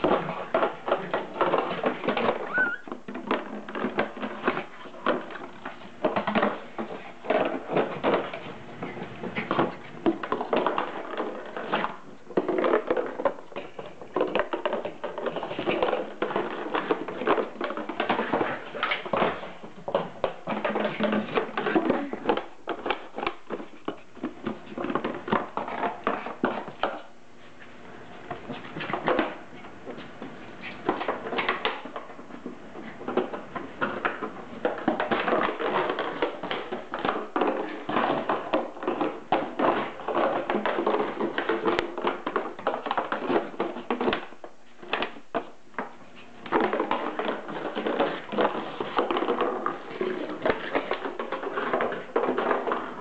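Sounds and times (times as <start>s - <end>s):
plastic bottle crackling on wooden floor: 0.0s - 27.0s.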